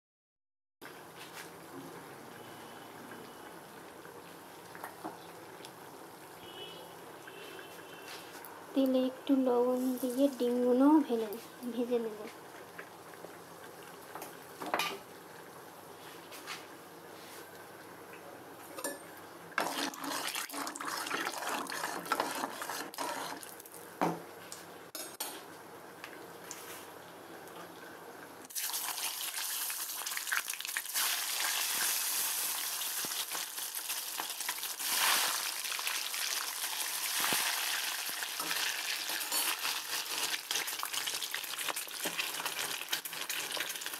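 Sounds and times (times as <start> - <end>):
hot oil sizzling: 7.2 - 15.6, 18.9 - 24.0, 28.4 - 43.9
metal spatula scraping a pan: 19.6 - 23.5.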